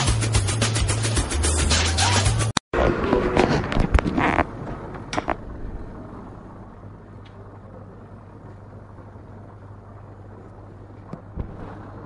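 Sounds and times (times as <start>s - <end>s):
steady low hum: 2.8s - 12.0s.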